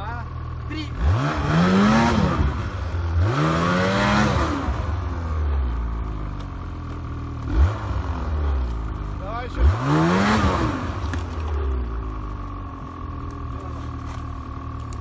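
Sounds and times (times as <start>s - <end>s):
snowmobile engine revving: 0.0s - 5.2s, 7.4s - 12.3s.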